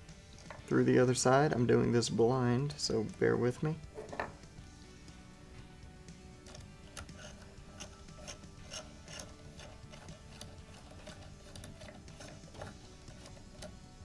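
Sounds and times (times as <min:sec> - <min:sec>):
screwdriver metal clicking: 0:06.5 - 0:13.8.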